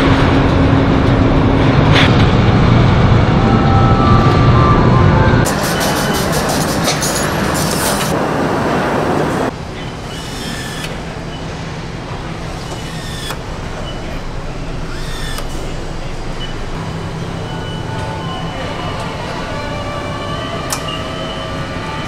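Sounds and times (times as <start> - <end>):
assembly line hum: 0.0 - 22.0
loud steady rush: 0.0 - 22.0
electric nutrunner whirring: 9.9 - 16.6.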